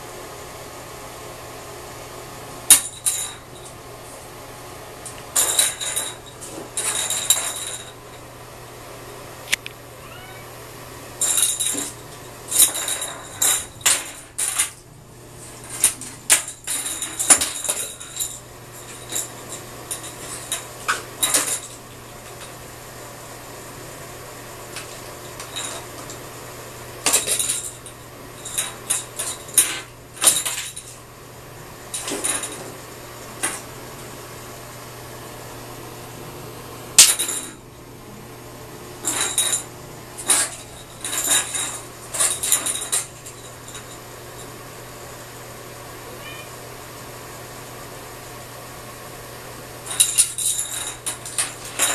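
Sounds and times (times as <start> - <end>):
plastic toys clattering in bathtub: 11.2 - 14.8, 15.6 - 22.5, 27.0 - 31.0, 32.0 - 32.7, 40.2 - 44.0, 49.9 - 51.9.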